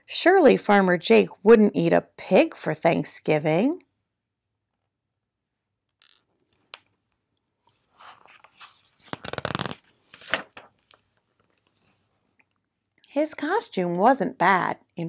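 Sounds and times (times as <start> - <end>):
book pages rustling: 7.6 - 12.2.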